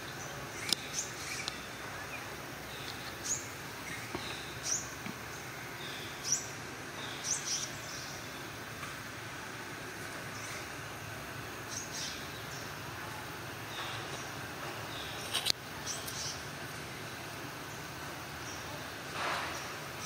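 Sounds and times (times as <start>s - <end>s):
outdoor background hiss: 0.0s - 20.0s.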